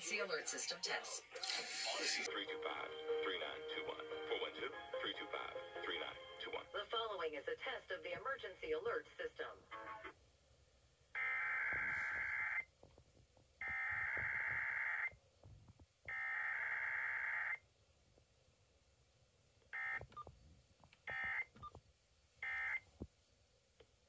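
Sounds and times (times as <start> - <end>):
warbling data tones from a speaker: 11.2 - 12.7, 13.6 - 15.2.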